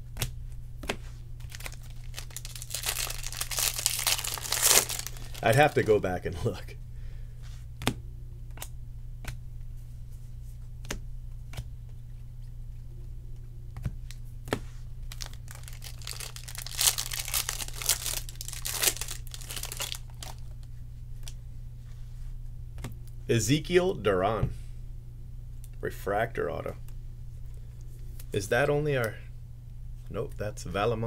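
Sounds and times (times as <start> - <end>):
steady low hum: 0.0 - 31.0
trading cards flicked by hand: 0.1 - 1.0, 7.8 - 9.4, 10.8 - 12.0
foil pack torn and crinkled: 1.4 - 6.0, 15.1 - 20.6.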